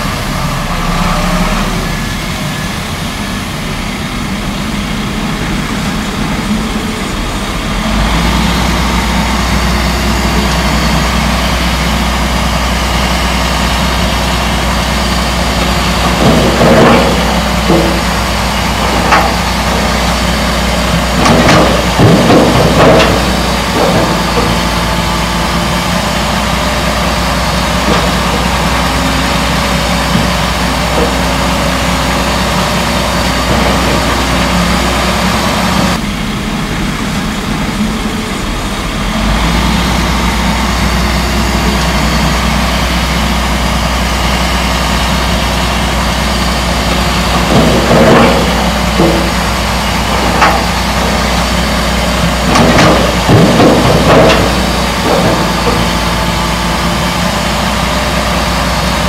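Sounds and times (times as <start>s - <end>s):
diesel engine running: 0.0s - 59.0s
metal clanks: 15.6s - 20.2s, 20.8s - 25.3s, 47.2s - 56.5s.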